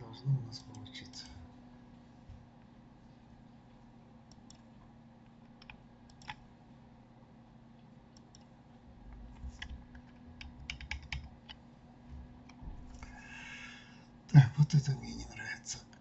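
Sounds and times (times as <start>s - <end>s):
mouse and keyboard clicks: 5.5s - 6.4s, 9.4s - 11.6s
low thumps: 12.1s - 13.0s.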